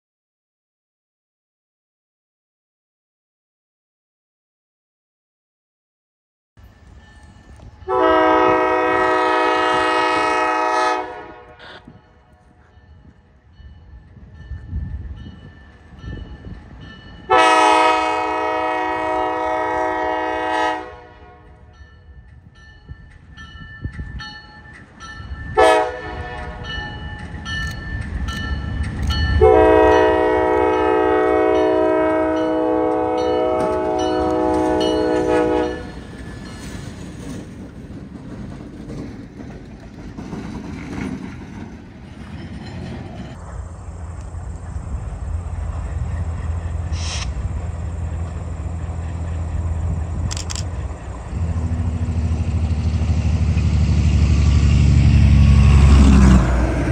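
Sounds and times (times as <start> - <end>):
locomotive air horn blasts: 7.9 - 12.0, 17.3 - 21.8, 25.6 - 26.9, 29.4 - 36.0
locomotive engine rumble: 21.4 - 56.9
wheels clattering on rails: 26.4 - 44.8.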